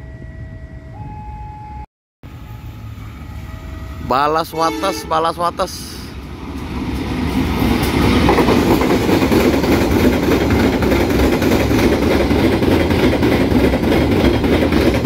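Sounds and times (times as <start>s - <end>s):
freight train rumbling past: 2.3s - 15.0s
wheels clattering over rail joints: 6.4s - 15.0s.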